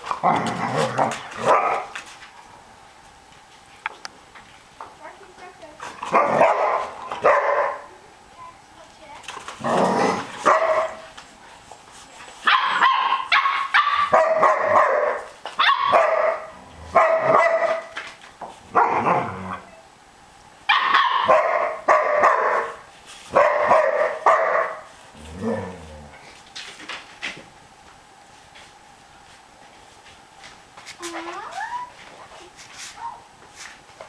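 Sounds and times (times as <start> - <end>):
puppy barking high-pitched: 1.4 - 1.9, 6.1 - 7.9, 10.4 - 11.1, 12.4 - 18.0, 18.7 - 19.3, 20.7 - 24.9.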